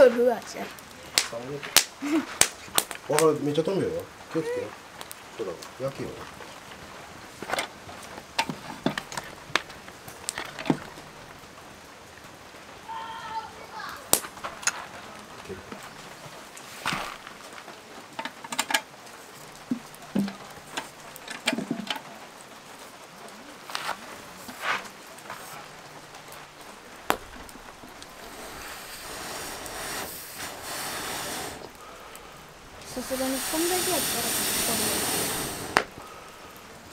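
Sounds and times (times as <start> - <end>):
wood fire crackling: 0.0 - 36.9
sharp wood pops: 1.2 - 3.4, 27.0 - 31.8, 35.7 - 36.1.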